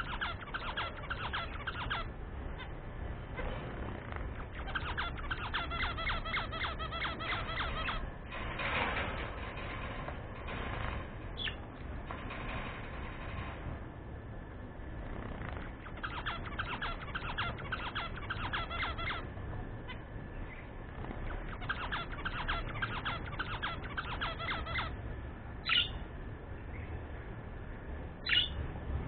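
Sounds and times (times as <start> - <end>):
budgerigar single calls: 0.0 - 2.7, 4.4 - 8.0, 15.8 - 19.3, 21.2 - 25.0, 25.6 - 26.0, 28.2 - 28.6
budgerigars chirping rapidly: 0.0 - 2.7, 3.9 - 8.0, 15.4 - 19.3, 21.2 - 25.0, 25.6 - 26.0, 28.2 - 28.6.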